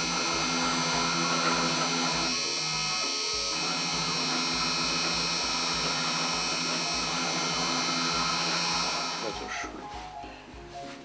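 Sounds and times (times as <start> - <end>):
engraving bit cutting: 0.0 - 9.6
spindle motor whining: 0.0 - 9.7.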